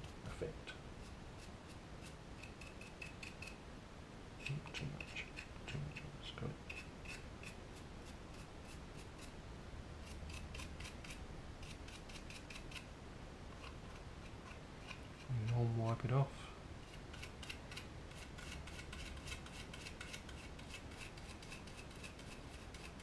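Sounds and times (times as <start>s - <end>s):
paintbrush scratching on plastic: 6.7s - 9.4s, 10.0s - 12.9s, 16.9s - 23.0s.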